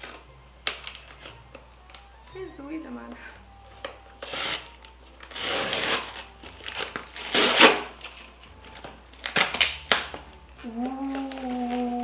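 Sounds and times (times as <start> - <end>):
cardboard and tape ripping: 0.0 - 1.4, 4.2 - 12.0.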